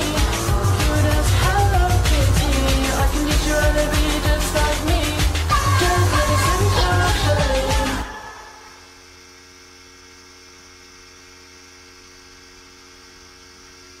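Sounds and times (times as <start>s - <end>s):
music: 0.0s - 9.0s
steady electrical hum: 0.0s - 14.0s.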